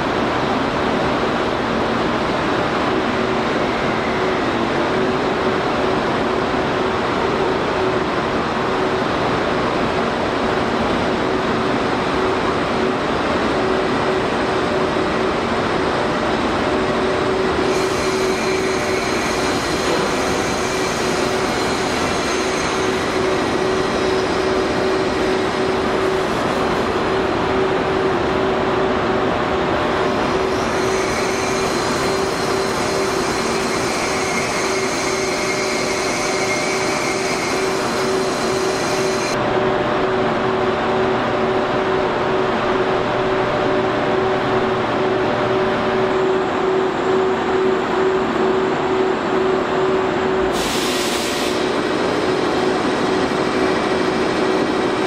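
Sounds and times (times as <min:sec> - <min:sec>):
thin high whines: 0:30.3 - 0:39.4.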